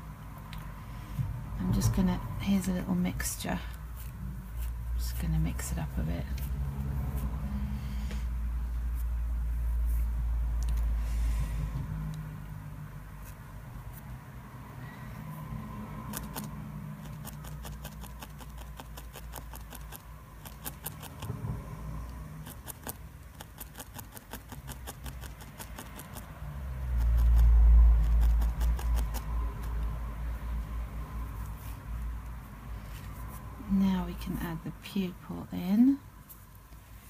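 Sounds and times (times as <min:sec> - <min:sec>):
felting needle ticks: 0:16.1 - 0:21.3, 0:22.1 - 0:29.9.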